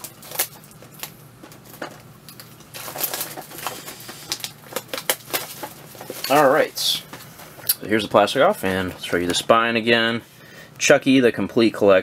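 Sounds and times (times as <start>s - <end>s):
plastic shrink-wrap tearing: 0.0s - 7.0s.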